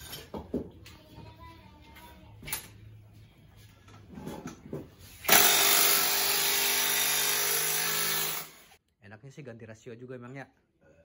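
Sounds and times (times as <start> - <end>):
handheld power tool running: 5.2 - 8.8.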